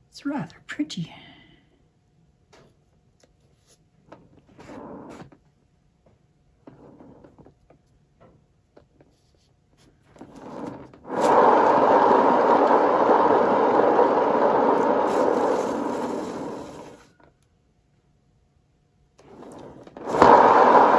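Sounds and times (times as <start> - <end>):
faint rubbing and handling: 2.6 - 5.6, 8.7 - 11.4
hair dryer blowing: 11.0 - 17.1, 19.4 - 20.9.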